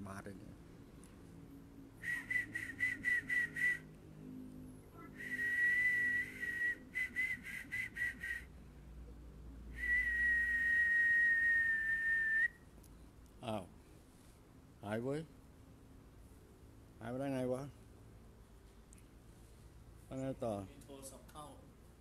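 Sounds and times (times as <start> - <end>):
person whistling high note: 2.0 - 3.9, 5.0 - 8.5, 9.8 - 12.6
breathing: 13.8 - 14.5.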